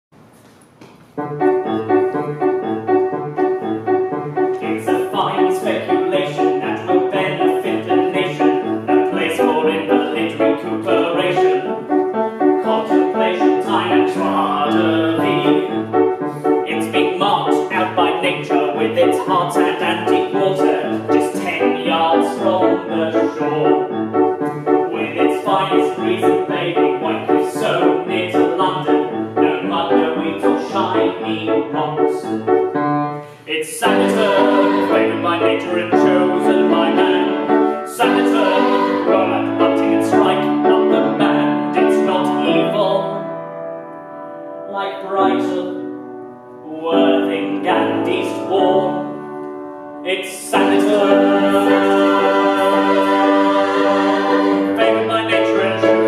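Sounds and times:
upright piano accompaniment: 0.2s - 56.0s
man singing: 4.6s - 12.0s, 12.6s - 15.9s, 16.6s - 23.9s, 24.9s - 32.4s, 33.4s - 43.2s, 44.7s - 45.8s, 46.6s - 49.2s, 50.0s - 54.0s, 54.6s - 56.0s.

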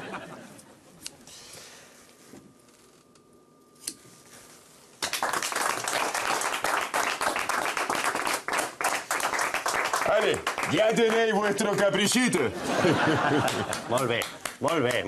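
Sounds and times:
group applauding: 5.0s - 12.4s, 13.0s - 15.0s.

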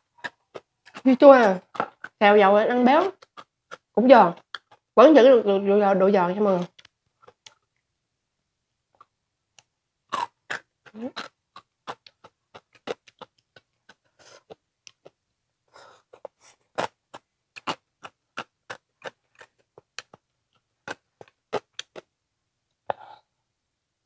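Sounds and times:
crunchy chewing: 0.1s - 2.2s, 3.0s - 4.9s, 10.1s - 15.2s, 15.8s - 22.1s.

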